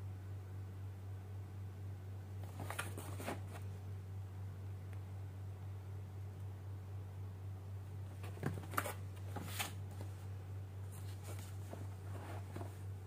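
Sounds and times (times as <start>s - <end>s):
steady low hum: 0.0s - 13.0s
cardboard box rustling and scraping: 2.5s - 3.6s, 10.9s - 12.9s.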